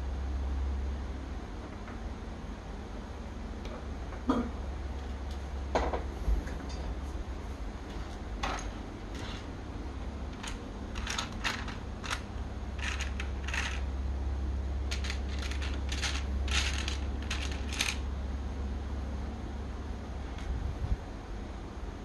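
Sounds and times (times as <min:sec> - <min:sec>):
steady low hum: 0:00.0 - 0:22.0
plastic toy pieces clicking: 0:10.4 - 0:12.2, 0:12.8 - 0:13.8, 0:14.9 - 0:18.0.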